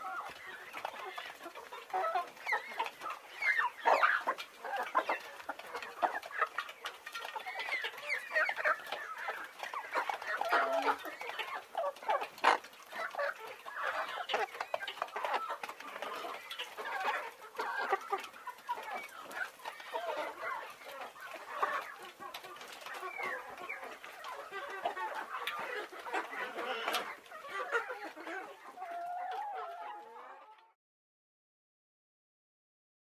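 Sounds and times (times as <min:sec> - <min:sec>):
hens clucking: 0:00.0 - 0:30.8.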